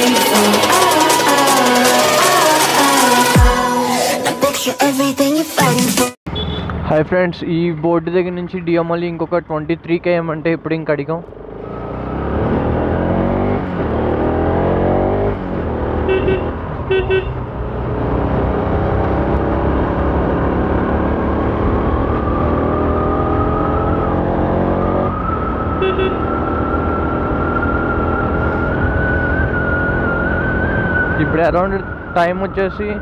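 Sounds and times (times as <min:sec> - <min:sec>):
motorcycle horn beeps: 0:06.3 - 0:06.8, 0:16.0 - 0:17.5, 0:25.8 - 0:26.4
motorcycle engine accelerating: 0:11.2 - 0:32.2.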